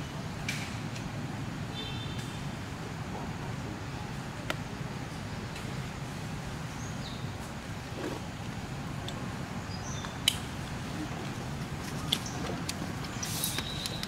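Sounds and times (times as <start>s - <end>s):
low outdoor rumble: 0.0s - 14.0s
sharp clicks: 12.0s - 14.0s.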